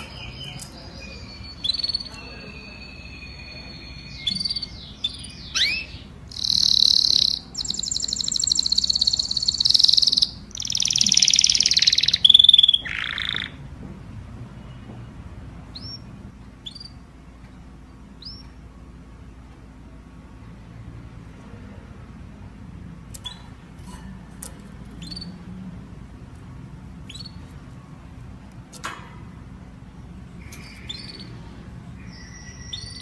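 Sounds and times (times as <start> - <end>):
canary singing trills: 0.0 - 13.6, 15.7 - 17.1, 18.2 - 18.6, 23.1 - 25.6, 27.0 - 27.7, 30.3 - 33.0.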